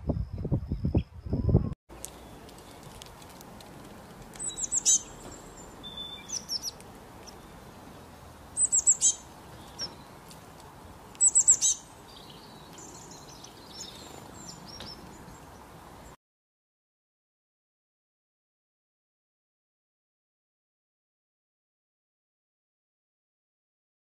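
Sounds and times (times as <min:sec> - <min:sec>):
soft bird chirps: 0:04.4 - 0:10.3, 0:11.1 - 0:16.2.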